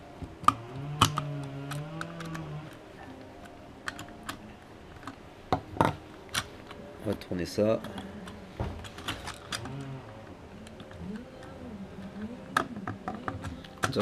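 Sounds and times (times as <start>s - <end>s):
screwdriver and plastic parts clicking: 0.2s - 5.2s, 7.8s - 10.0s, 12.5s - 14.0s.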